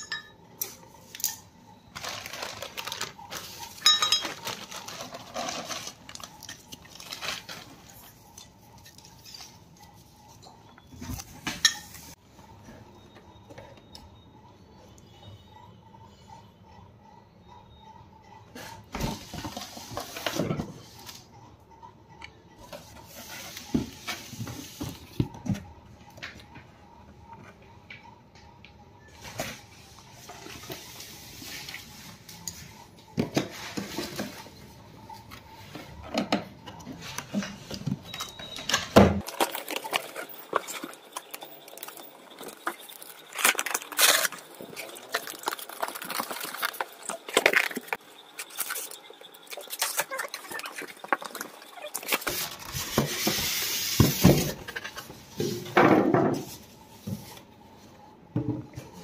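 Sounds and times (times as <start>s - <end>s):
rustling of packing: 1.9s - 9.6s, 39.2s - 53.3s.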